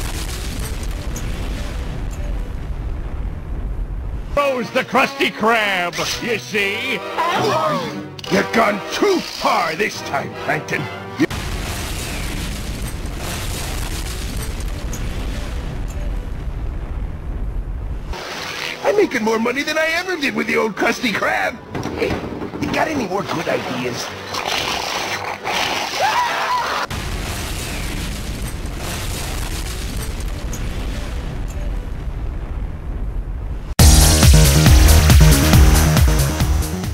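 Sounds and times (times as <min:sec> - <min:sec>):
explosion blast and rumble: 0:00.0 - 0:04.4, 0:11.3 - 0:18.2, 0:26.9 - 0:35.8
cartoon explosion: 0:11.3 - 0:17.4, 0:18.0 - 0:19.0.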